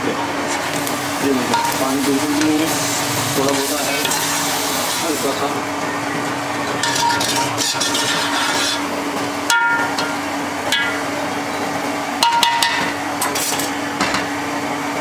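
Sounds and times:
metal spoon scraping rice in pot: 6.8s - 8.9s.

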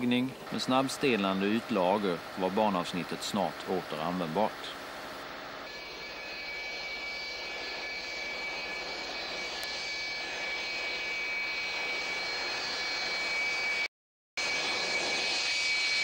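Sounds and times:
jet engine whine: 0.0s - 16.0s.

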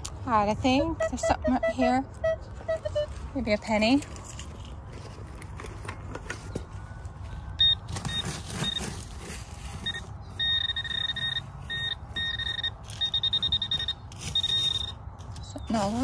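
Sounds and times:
metal detector beeping: 7.6s - 16.0s.

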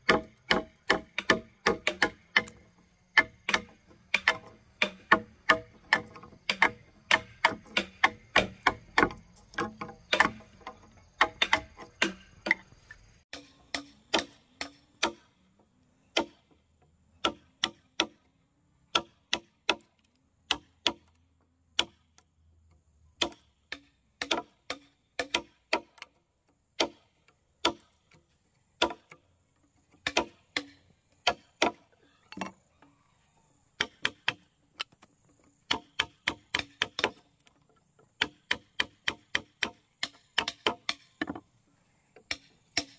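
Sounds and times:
hand tool striking wood: 0.0s - 12.7s, 13.3s - 15.3s, 16.1s - 16.6s, 17.2s - 18.2s, 18.9s - 19.9s, 20.5s - 21.2s, 21.8s - 22.2s, 23.2s - 26.1s, 26.8s - 28.2s, 28.8s - 29.2s, 29.9s - 32.6s, 33.8s - 35.0s, 35.7s - 41.5s, 42.2s - 42.9s.

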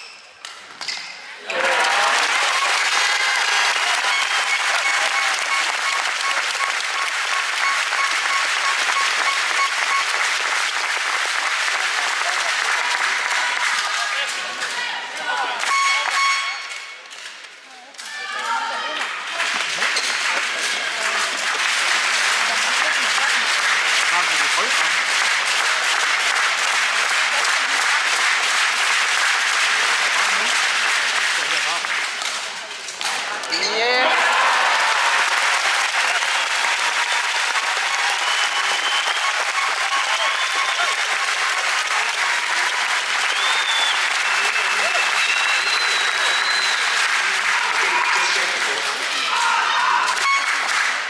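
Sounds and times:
crowd applauding: 1.4s - 17.2s, 18.0s - 51.0s
short repeating tone: 15.7s - 17.0s.

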